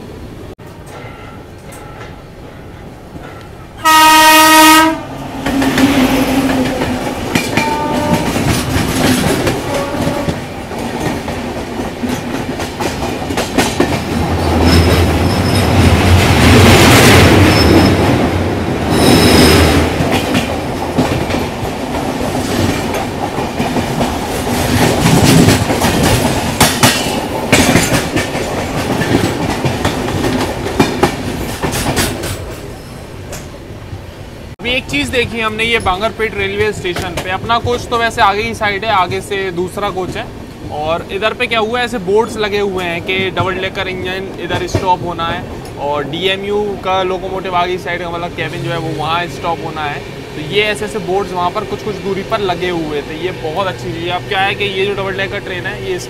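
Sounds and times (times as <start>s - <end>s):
locomotive horn blast: 3.8s - 6.7s, 7.5s - 8.5s, 9.6s - 10.4s
train wheels clattering over rail joints: 5.3s - 33.6s, 35.1s - 41.0s, 42.2s - 47.0s.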